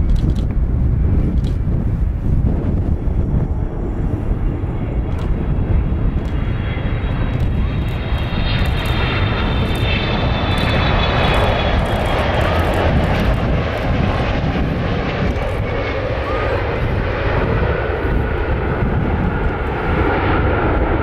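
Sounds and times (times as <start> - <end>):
airliner engines passing: 0.0 - 21.0.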